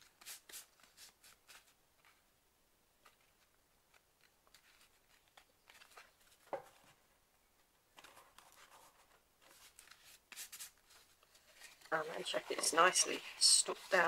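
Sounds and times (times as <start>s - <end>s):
paper and card rustling: 0.0s - 2.3s, 3.0s - 7.0s, 7.9s - 14.0s
light ticks of book covers: 3.0s - 7.0s.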